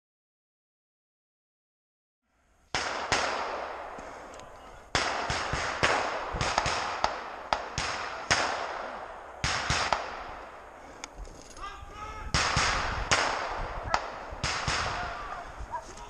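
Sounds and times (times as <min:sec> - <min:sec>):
rifle shots echoing: 0:02.7 - 0:11.1, 0:12.2 - 0:15.8.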